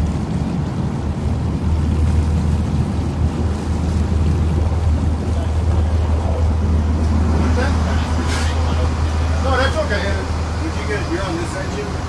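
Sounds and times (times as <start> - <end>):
wind on microphone: 0.0 - 9.2
boat engine drone: 0.0 - 12.0
water rushing along hull: 0.0 - 12.0.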